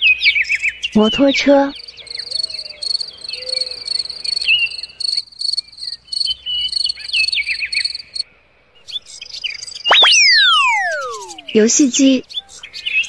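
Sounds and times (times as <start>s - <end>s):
birds chirping: 8.8s - 13.0s.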